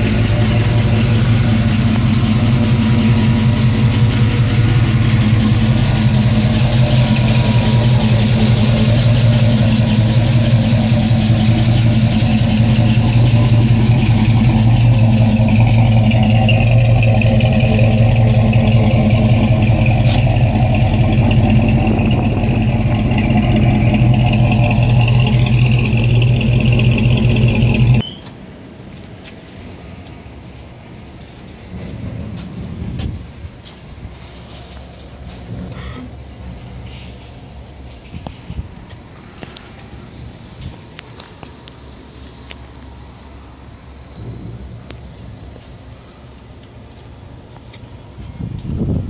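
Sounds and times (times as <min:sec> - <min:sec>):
pickup engine idling: 0:00.0 - 0:28.0.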